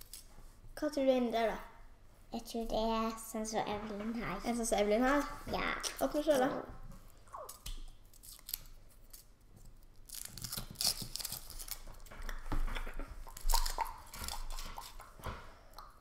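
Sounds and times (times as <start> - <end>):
foil wrapper crinkling and tearing: 8.1 - 12.4, 13.2 - 15.1.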